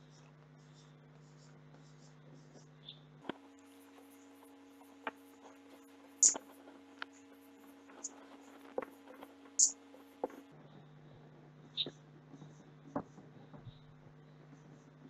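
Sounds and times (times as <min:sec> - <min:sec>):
faint steady hum: 0:00.0 - 0:15.0
whiteboard marker squeaking: 0:06.2 - 0:06.4, 0:09.6 - 0:10.4.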